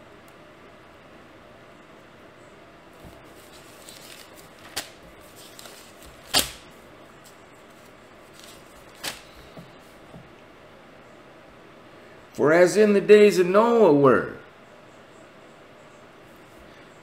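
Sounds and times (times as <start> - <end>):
soft rustling: 2.9 - 6.3, 7.2 - 10.3.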